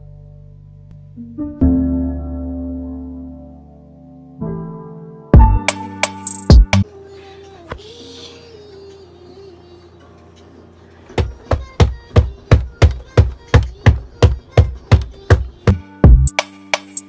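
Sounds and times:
deep bass notes: 5.4 - 5.7, 15.7 - 16.3
drum machine beat: 5.4 - 6.8, 11.2 - 17.0
hip-hop music: 5.4 - 6.8, 15.7 - 17.0.

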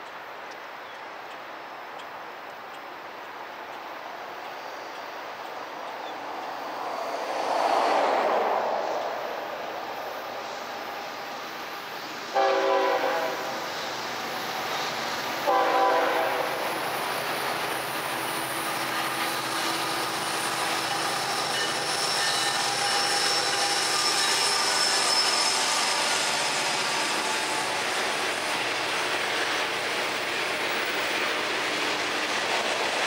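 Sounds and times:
freight train rumbling past: 1.6 - 33.0
train horn toots: 12.4 - 13.6, 15.4 - 16.6.

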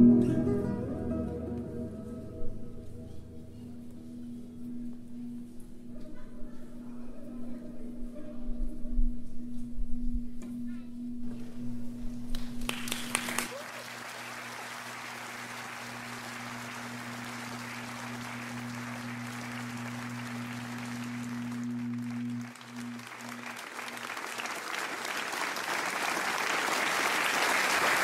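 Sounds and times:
held low note: 0.0 - 13.0, 14.8 - 24.2
audience applause: 12.4 - 28.0.

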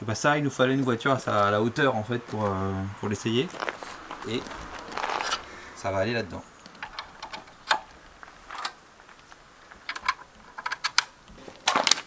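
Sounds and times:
clicks of metal parts and tools: 9.9 - 12.0.

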